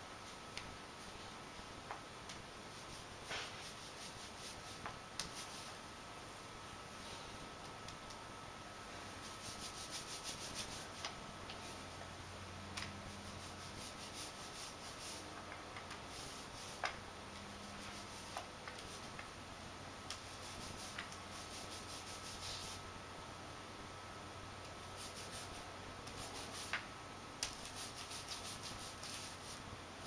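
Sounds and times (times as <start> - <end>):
paint roller swishing: 2.7 - 5.8, 9.2 - 11.1, 27.6 - 29.7.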